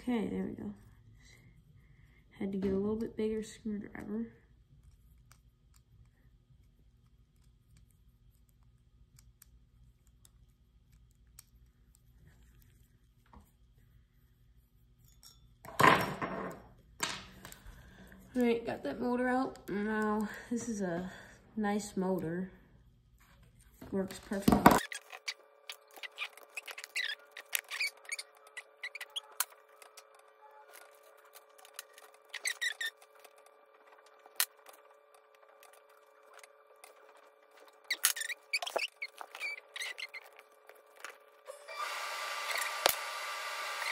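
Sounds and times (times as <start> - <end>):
plastic parts clicking and squeaking: 24.2 - 41.5.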